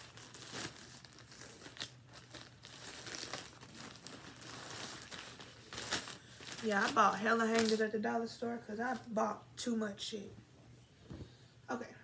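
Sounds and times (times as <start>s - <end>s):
plastic bags crinkling: 0.0s - 8.0s.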